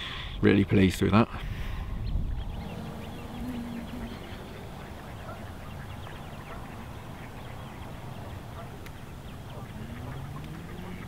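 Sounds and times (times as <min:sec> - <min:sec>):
background hiss: 0:01.3 - 0:11.0
waterfowl calling: 0:02.4 - 0:11.0.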